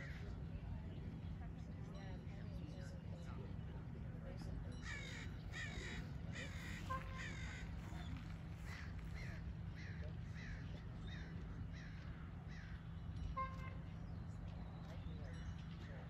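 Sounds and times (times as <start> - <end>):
crow cawing: 4.8 - 12.8.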